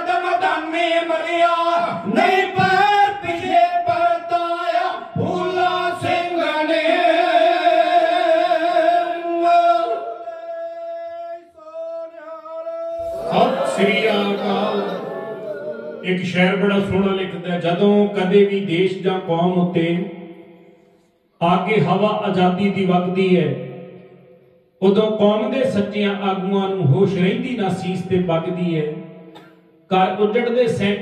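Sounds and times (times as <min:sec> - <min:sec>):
group singing together: 0:11.8 - 0:16.0.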